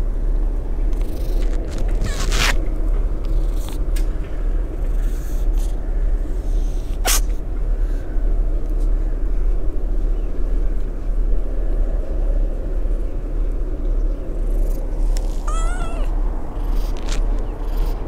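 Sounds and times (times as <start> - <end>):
steady low rumble: 0.0 - 18.0
kitten meowing: 15.3 - 16.1.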